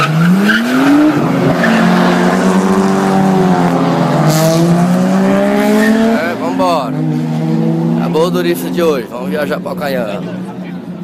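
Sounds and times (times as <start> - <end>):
car engine revving hard: 0.0 - 8.8
tyres skidding and squealing: 0.0 - 11.0.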